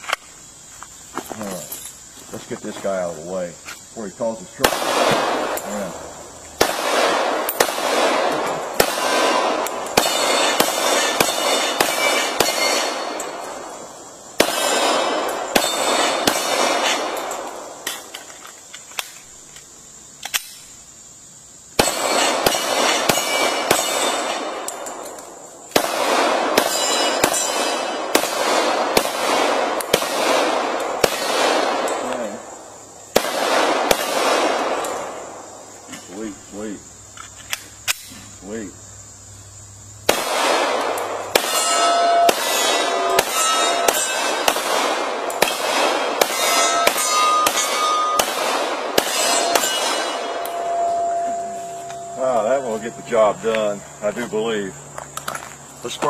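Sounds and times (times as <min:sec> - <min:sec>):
pistol shots echoing: 0:04.6 - 0:18.1, 0:21.8 - 0:32.5, 0:33.1 - 0:35.5, 0:40.0 - 0:53.4
bullets ringing on steel targets: 0:10.0 - 0:13.5, 0:14.4 - 0:18.0, 0:21.8 - 0:25.0, 0:26.6 - 0:28.3, 0:40.8 - 0:44.8, 0:45.4 - 0:53.5.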